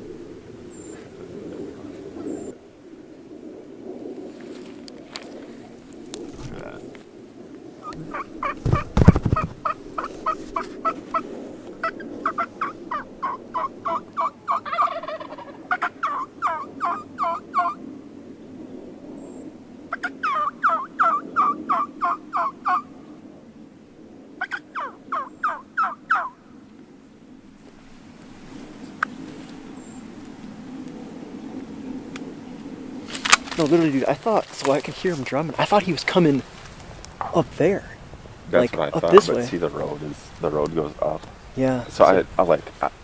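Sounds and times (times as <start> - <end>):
turkey calling: 7.8 - 17.8, 19.9 - 22.9, 24.4 - 26.4.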